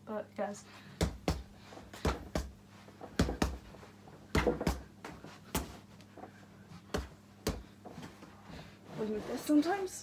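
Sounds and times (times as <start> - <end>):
fists thudding into punch bag: 1.0 - 4.9.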